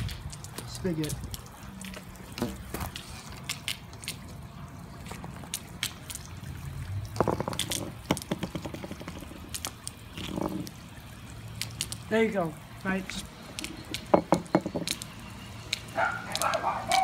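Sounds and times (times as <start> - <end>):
low steady water wash: 0.0 - 17.0
water dripping and trickling: 0.0 - 17.0.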